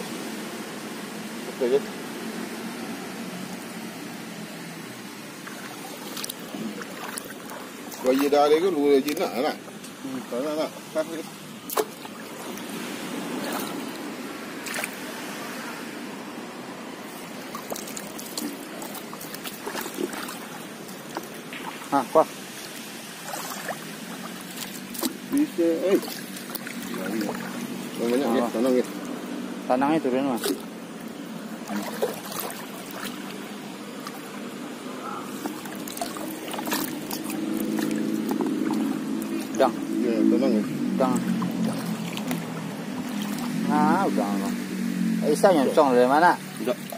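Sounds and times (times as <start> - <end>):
water sloshing and trickling: 0.0 - 46.9
water splashes: 0.0 - 46.9.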